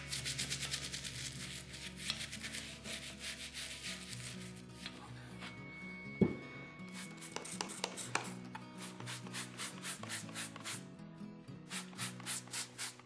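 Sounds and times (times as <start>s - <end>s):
stiff brush scrubbing metal: 0.0s - 4.6s
background music: 0.0s - 13.0s.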